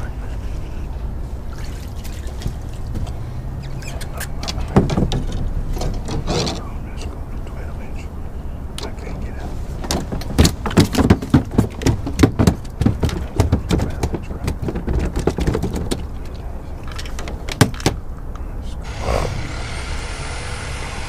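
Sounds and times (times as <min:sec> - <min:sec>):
gear clicking in plastic boat: 0:09.9 - 0:18.0.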